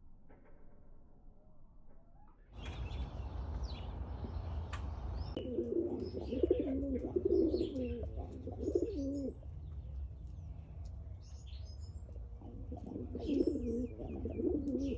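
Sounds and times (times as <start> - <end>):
pigeons cooing: 5.3 - 9.4, 12.2 - 14.9.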